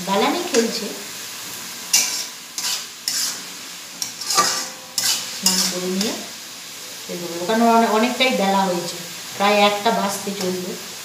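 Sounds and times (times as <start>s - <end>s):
food sizzling: 0.0s - 11.0s
metal spatula scraping a wok: 1.9s - 6.2s.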